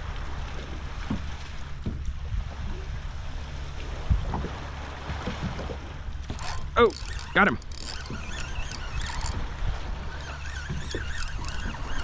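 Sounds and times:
water lapping against hull: 0.0 - 12.0.

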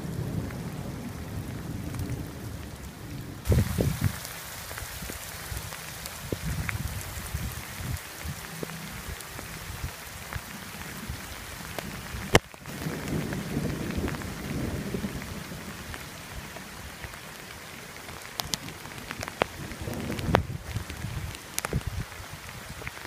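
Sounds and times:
low thunder rumble: 0.0 - 17.4, 18.2 - 22.6
steady rain: 0.0 - 23.0
thunder crack: 3.4 - 4.2, 12.7 - 15.4.

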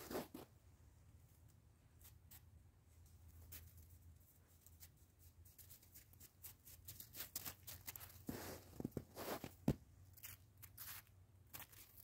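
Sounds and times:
puppies moving in snow: 5.5 - 9.8.

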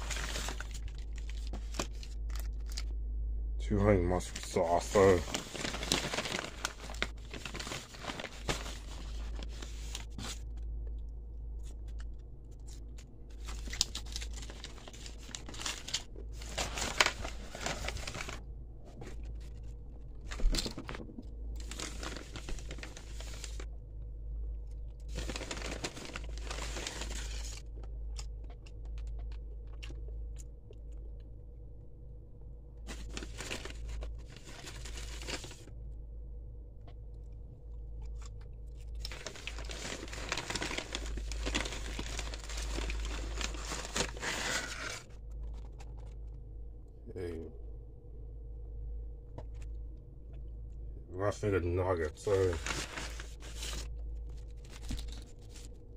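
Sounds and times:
paper bag crinkling: 0.0 - 2.9, 4.1 - 10.6, 11.6 - 23.7, 25.0 - 27.7, 32.9 - 35.7, 38.8 - 46.3, 52.2 - 55.9.

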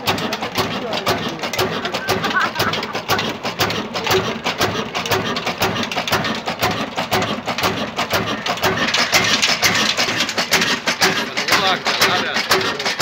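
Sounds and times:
stationary engine thudding: 0.0 - 13.0.

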